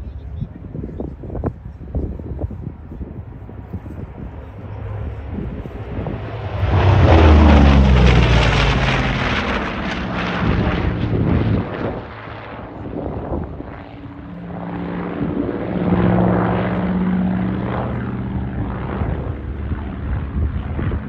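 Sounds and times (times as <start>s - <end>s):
propeller plane engines droning: 0.0s - 21.0s.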